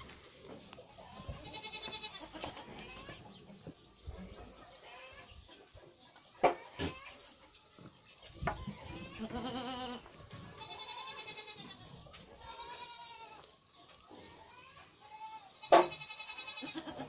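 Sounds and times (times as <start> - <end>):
goat kids bleating: 0.9 - 3.4, 6.6 - 7.4, 8.0 - 17.0.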